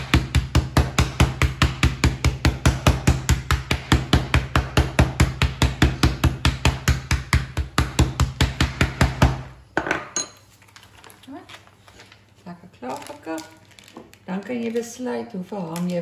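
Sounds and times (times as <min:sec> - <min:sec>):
meat mallet pounding chicken: 0:00.0 - 0:09.6
plastic rustling: 0:10.4 - 0:16.0.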